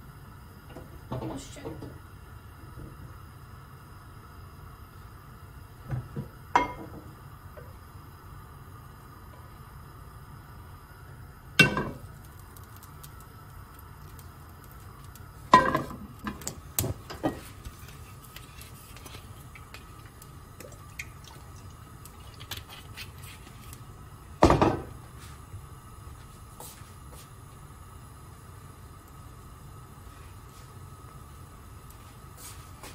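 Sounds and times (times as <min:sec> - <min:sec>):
steady low hum: 0:00.0 - 0:32.9.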